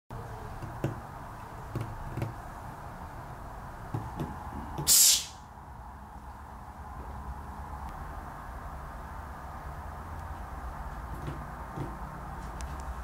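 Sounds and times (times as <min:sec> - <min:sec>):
light knocks and taps: 0:01.7 - 0:02.4, 0:11.1 - 0:12.9
loud hiss burst: 0:04.8 - 0:05.5.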